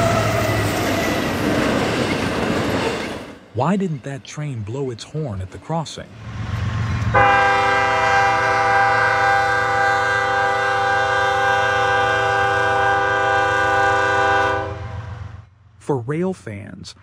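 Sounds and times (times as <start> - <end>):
passing train rumble: 0.0 - 16.1
locomotive air horn blast: 7.1 - 15.2.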